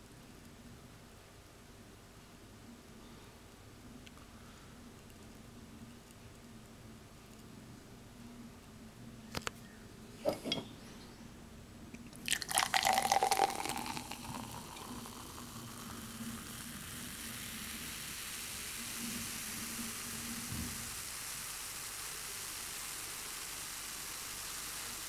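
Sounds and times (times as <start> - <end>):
fizzy cider pouring into glass: 12.1 - 25.0
foam fizzing hiss: 12.2 - 25.0.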